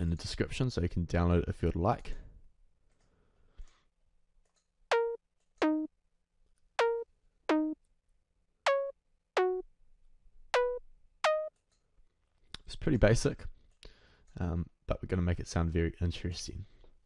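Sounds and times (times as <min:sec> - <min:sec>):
synthesizer plucked notes: 0:04.9 - 0:05.9, 0:06.8 - 0:07.8, 0:08.7 - 0:09.7, 0:10.6 - 0:11.5.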